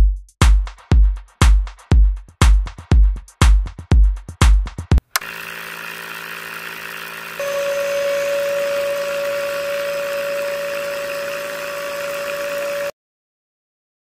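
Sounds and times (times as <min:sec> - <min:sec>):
gear motors whining: 0:05.1 - 0:12.9
higher-pitched hum: 0:05.2 - 0:12.9.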